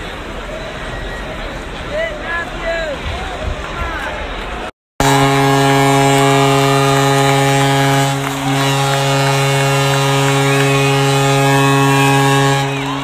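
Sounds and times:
arena goal horn blast: 5.0 - 13.0.

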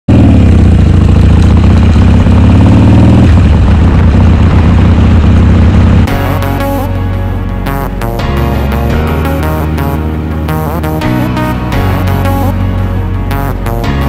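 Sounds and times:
motorcycle engine running: 0.0 - 14.0
background music: 6.0 - 14.0.

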